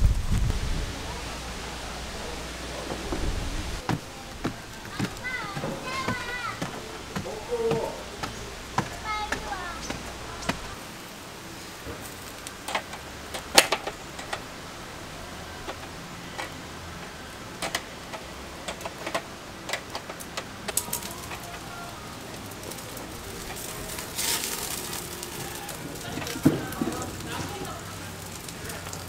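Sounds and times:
rain hiss: 0:00.0 - 0:29.0
sharp pops and ticks: 0:03.8 - 0:10.8, 0:17.6 - 0:21.6.

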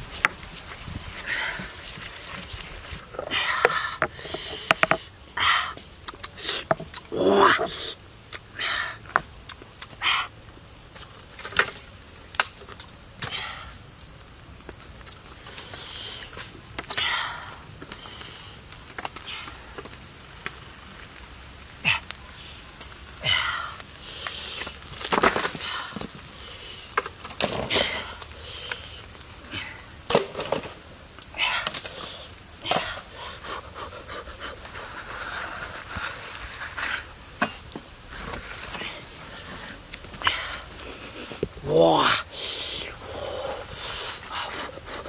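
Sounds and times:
rustling and scraping: 0:00.0 - 0:05.1, 0:24.1 - 0:29.3, 0:31.7 - 0:41.6, 0:43.4 - 0:45.0
high insect drone: 0:00.0 - 0:45.0
bamboo sticks cracking: 0:05.9 - 0:07.1, 0:10.9 - 0:13.4, 0:23.8 - 0:33.1.

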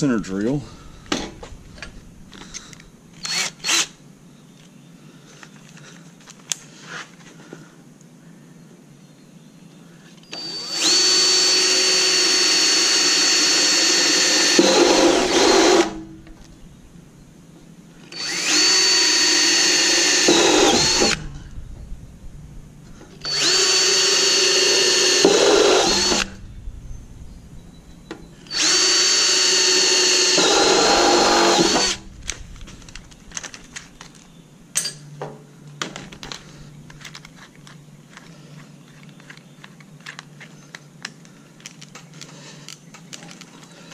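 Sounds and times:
drill boring into steel: 0:03.2 - 0:04.0, 0:10.3 - 0:16.1, 0:18.1 - 0:21.3, 0:23.2 - 0:26.4, 0:28.4 - 0:32.2
drill chuck clicks and rattles: 0:36.0 - 0:43.9.

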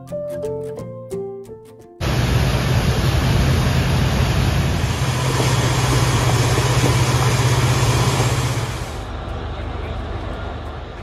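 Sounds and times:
water rushing off hull: 0:02.0 - 0:09.1
boat engine drone: 0:02.0 - 0:11.0.

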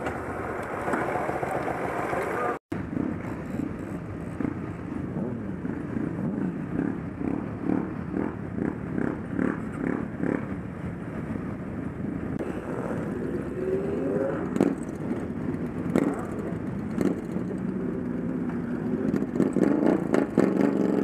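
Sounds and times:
motorcycle engines idling: 0:00.0 - 0:02.6
motorcycle engine revving: 0:00.0 - 0:10.6, 0:12.5 - 0:21.0.

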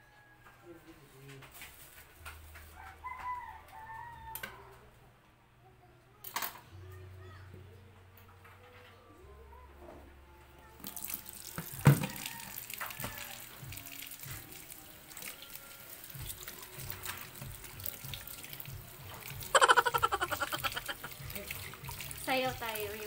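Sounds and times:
tap water running into sink: 0:10.8 - 0:23.0.

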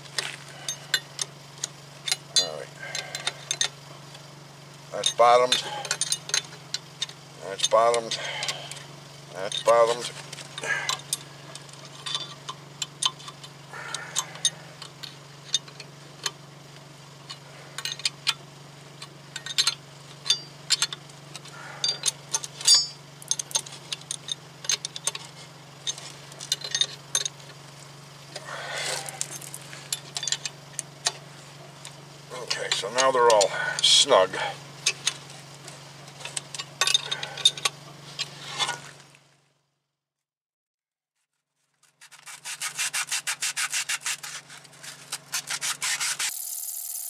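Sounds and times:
steady low hum: 0:00.0 - 0:39.6
wrench clicking on bolts: 0:19.0 - 0:25.3.

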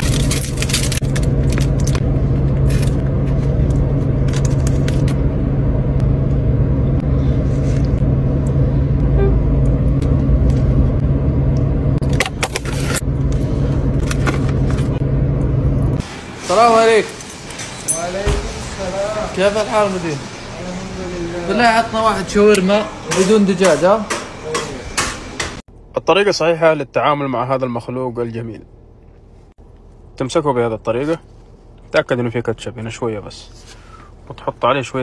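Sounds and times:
foil wrapper crinkling: 0:00.0 - 0:03.0.

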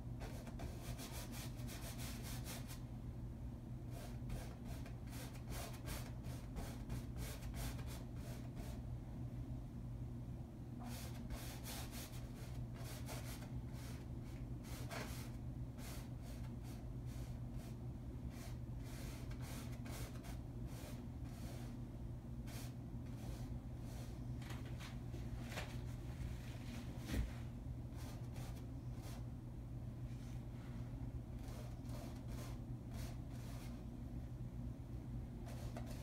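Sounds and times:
steady low hum: 0:00.0 - 0:36.0
paintbrush scratching on canvas: 0:31.4 - 0:33.7, 0:35.4 - 0:36.0.

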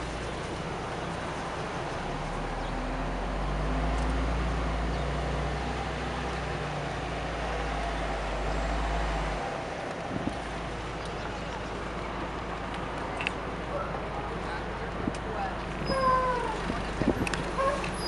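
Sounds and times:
bus engine running: 0:00.0 - 0:18.0
wind buffeting microphone: 0:10.0 - 0:11.3, 0:14.9 - 0:18.0.

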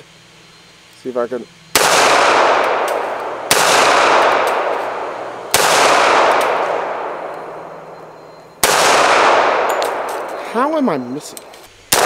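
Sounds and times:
pistol shots with rolling echo: 0:01.7 - 0:10.4.

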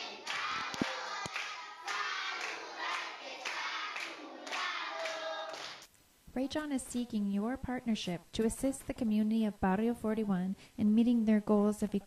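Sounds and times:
children singing: 0:00.0 - 0:05.8
hands clapping: 0:00.0 - 0:05.9.

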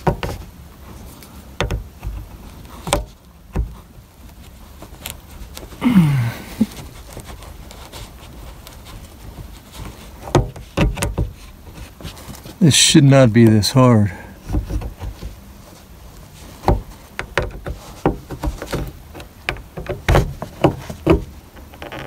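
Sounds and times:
person sighing: 0:05.8 - 0:06.8.

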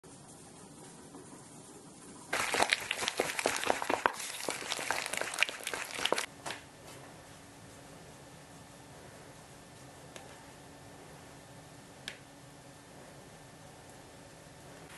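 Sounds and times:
crinkling and rustling: 0:02.3 - 0:06.3.

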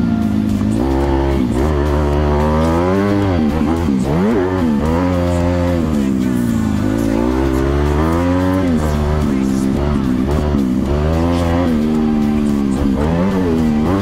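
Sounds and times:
dirt bike engine revving: 0:00.0 - 0:14.0.

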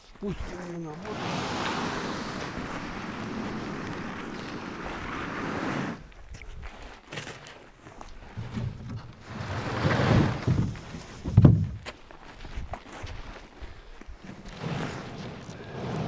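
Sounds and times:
boat scraping over grass: 0:00.6 - 0:06.0, 0:08.4 - 0:11.6, 0:14.2 - 0:16.0
footsteps rustling on frosted grass: 0:01.5 - 0:07.0, 0:11.8 - 0:14.3.

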